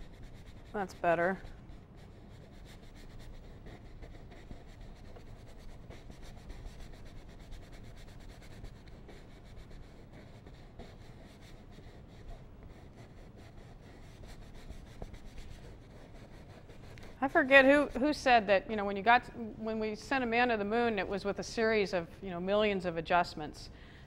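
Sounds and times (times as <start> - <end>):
paintbrush strokes on canvas: 0.0 - 18.2.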